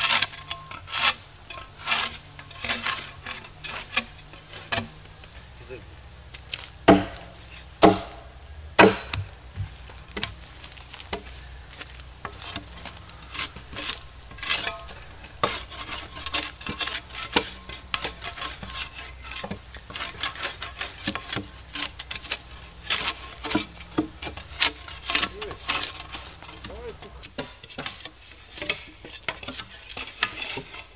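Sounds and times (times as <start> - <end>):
spade scraping bark: 0.0 - 30.9
spade striking wood: 6.5 - 30.8.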